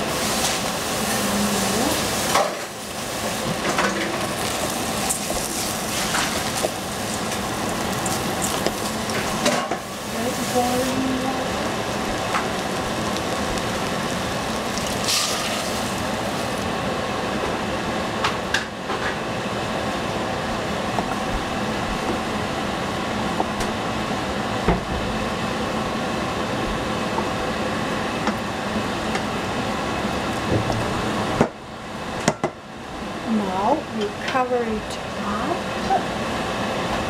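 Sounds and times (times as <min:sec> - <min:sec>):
couscous sizzling in a pan: 0:00.0 - 0:16.8
steady hum: 0:00.0 - 0:37.0.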